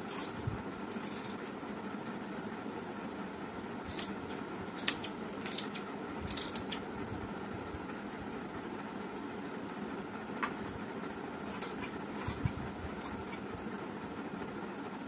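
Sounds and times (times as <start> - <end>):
steady background hum: 0.0 - 15.0
scissors snipping cloth: 3.9 - 6.8.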